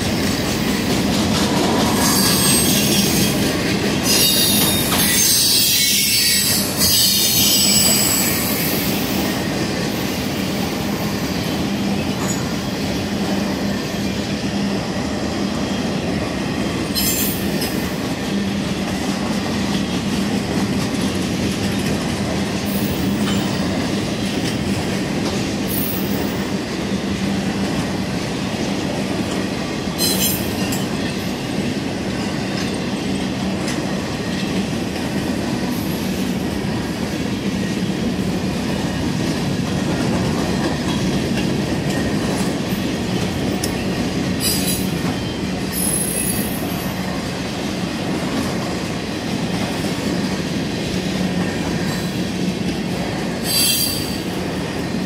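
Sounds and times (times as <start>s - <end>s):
train wheels rumbling on rail: 0.0s - 55.0s
high wheel squeals: 4.1s - 9.0s, 53.4s - 54.2s.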